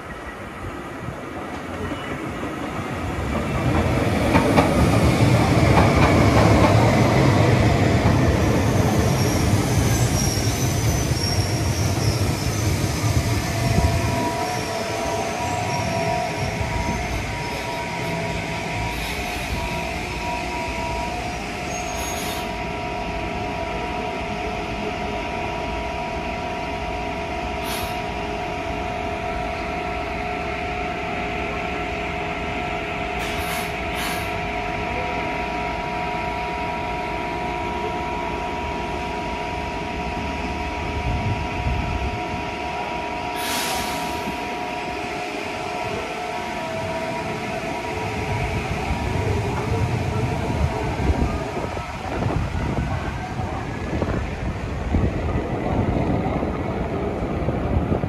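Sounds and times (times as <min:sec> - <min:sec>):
train equipment whine: 0:00.0 - 0:58.0
air release hisses: 0:27.6 - 0:28.0, 0:33.2 - 0:34.4, 0:43.4 - 0:44.3.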